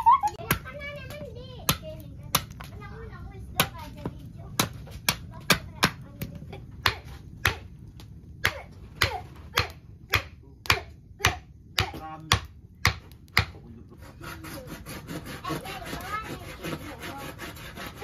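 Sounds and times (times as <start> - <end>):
machete chopping bamboo: 6.8 - 7.7, 8.4 - 13.6.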